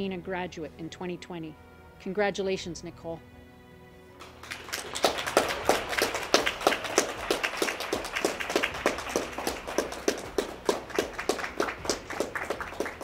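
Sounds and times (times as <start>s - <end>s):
small group applauding: 4.2s - 13.0s.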